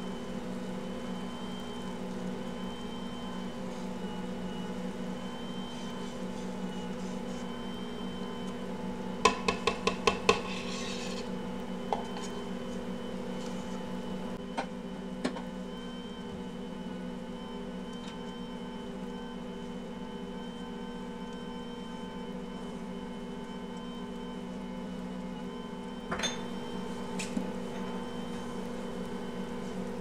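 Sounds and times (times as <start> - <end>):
stand mixer humming: 0.0 - 30.0
glass cup tapping steel bowl: 9.3 - 10.4.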